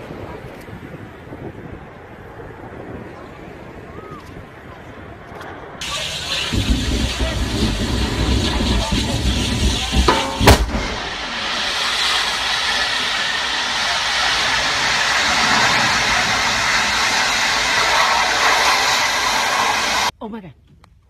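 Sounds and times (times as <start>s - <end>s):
sharp bang: 5.8s - 19.9s
flames roaring with rushing hiss: 5.8s - 20.1s.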